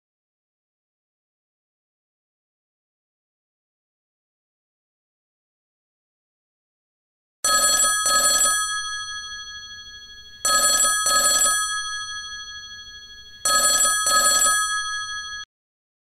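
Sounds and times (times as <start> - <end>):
mobile phone ringing: 7.4 - 15.5.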